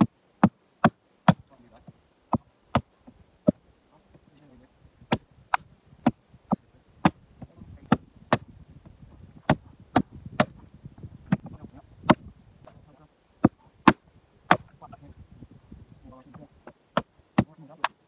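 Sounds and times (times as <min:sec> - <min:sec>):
axe chopping wood: 0:00.0 - 0:01.5, 0:02.3 - 0:03.6, 0:05.1 - 0:07.2, 0:07.8 - 0:08.5, 0:09.4 - 0:10.6, 0:11.3 - 0:12.3, 0:13.4 - 0:14.7, 0:16.6 - 0:18.0.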